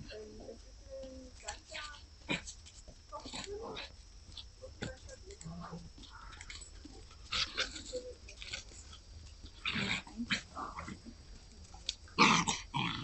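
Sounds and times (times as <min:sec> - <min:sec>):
puppies growling and barking: 0:08.9 - 0:11.2.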